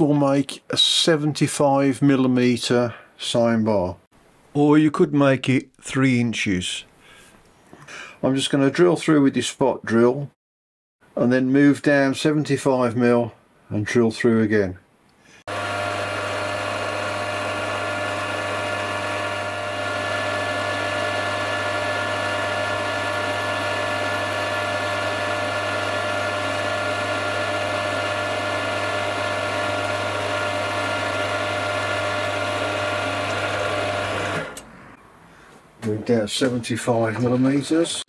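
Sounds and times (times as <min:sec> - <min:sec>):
milling machine hum and whine: 0:15.5 - 0:34.7.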